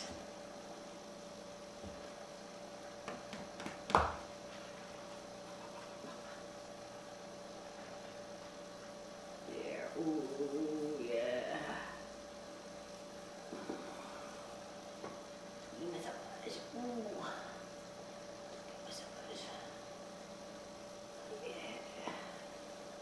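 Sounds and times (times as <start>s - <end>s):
electrical hum: 0.0s - 23.0s
wavering voice-like sound: 9.8s - 11.9s.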